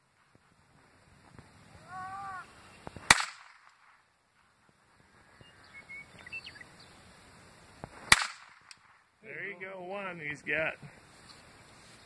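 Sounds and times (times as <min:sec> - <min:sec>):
faint chirping: 0:01.7 - 0:03.1, 0:04.5 - 0:07.5
pistol shot: 0:03.1 - 0:03.9, 0:08.1 - 0:08.9.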